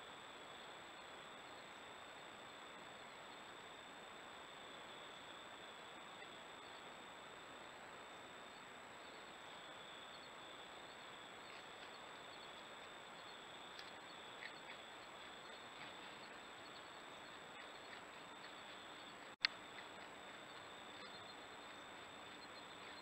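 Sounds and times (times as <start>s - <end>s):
faint ticks: 11.3s - 23.0s.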